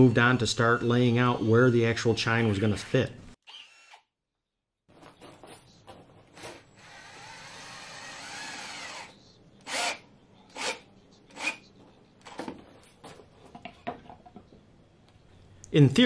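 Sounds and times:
cordless drill whining: 3.4s - 4.1s, 6.6s - 11.6s
drill trigger bursts: 6.7s - 11.6s.

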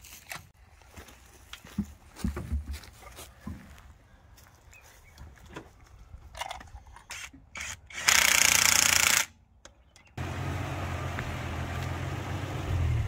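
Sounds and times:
vehicle engine running: 10.2s - 13.0s.

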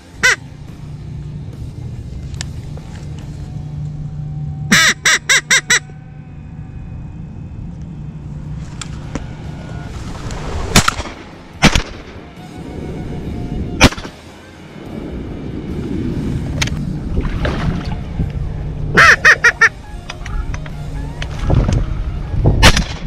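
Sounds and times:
duck quacks: 0.2s - 0.4s, 4.7s - 5.9s, 19.0s - 19.8s
shotgun shots: 10.8s - 12.1s, 13.8s - 14.2s.

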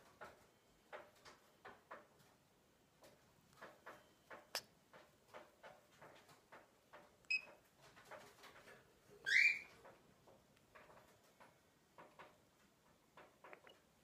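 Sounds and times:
soft ticks and rustles: 0.0s - 14.0s
parrot chirping: 9.2s - 9.7s
rising squeaky bird call: 9.3s - 9.7s.

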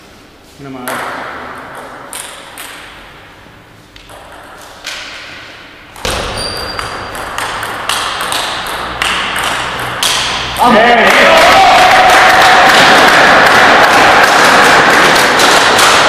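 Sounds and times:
steady background noise: 0.0s - 16.0s
table tennis ball hits: 0.8s - 3.2s, 4.0s - 11.2s, 12.7s - 16.0s
ball bouncing on table: 4.0s - 5.2s, 5.9s - 10.5s.

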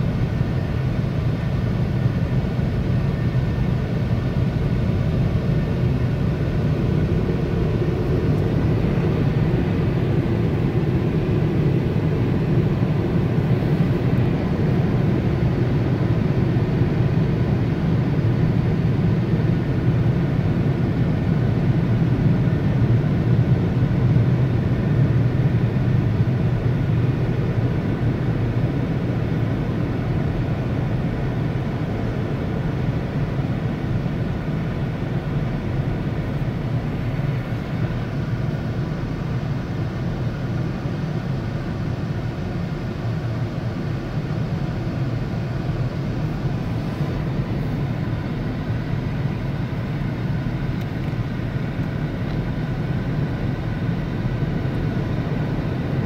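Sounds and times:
car wash dryer blowers roaring: 0.0s - 56.0s.

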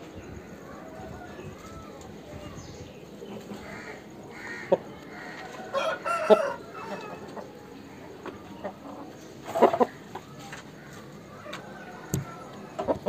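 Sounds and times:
rooster call: 3.6s - 7.2s, 11.3s - 12.8s.

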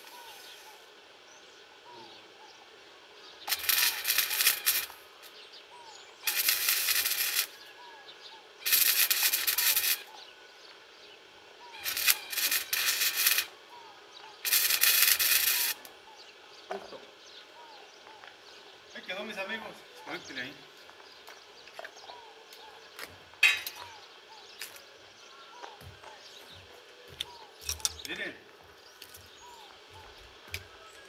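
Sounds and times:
welder arc crackling: 3.4s - 5.4s, 6.2s - 7.7s, 8.6s - 10.2s, 11.6s - 13.6s, 14.4s - 16.0s.

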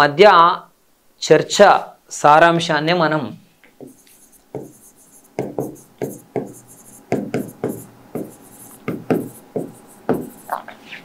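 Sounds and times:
chalk tapping and scraping: 3.7s - 10.7s.

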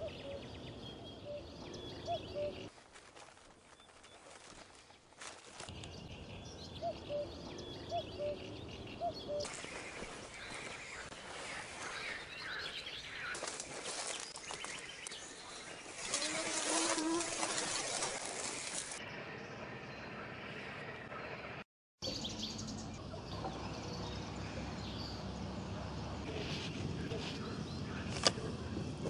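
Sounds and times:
rustling noise: 2.7s - 5.8s, 15.9s - 19.0s.

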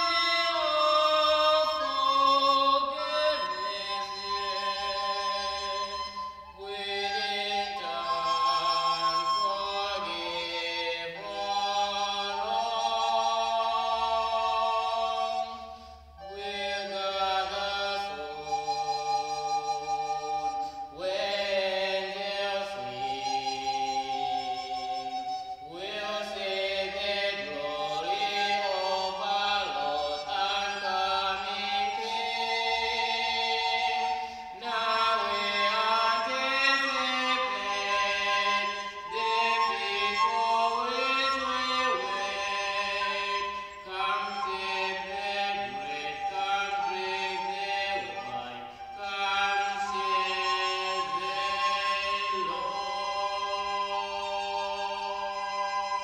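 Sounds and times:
man singing: 0.0s - 15.6s, 16.2s - 55.6s
recorders playing a hymn melody: 0.0s - 56.0s.

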